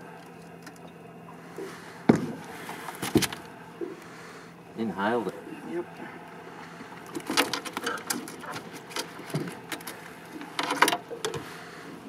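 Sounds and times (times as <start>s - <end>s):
fish rattling in landing net: 7.1s - 11.0s.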